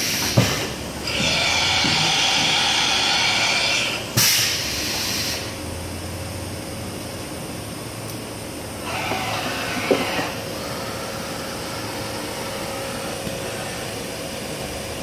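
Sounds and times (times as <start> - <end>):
machine running steadily: 0.0 - 15.0
air hiss: 3.6 - 5.6.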